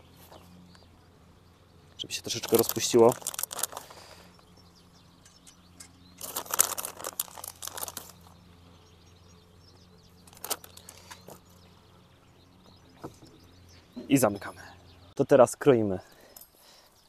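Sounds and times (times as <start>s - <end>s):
grated cheese crinkling rustle: 2.3s - 4.0s, 6.2s - 8.3s.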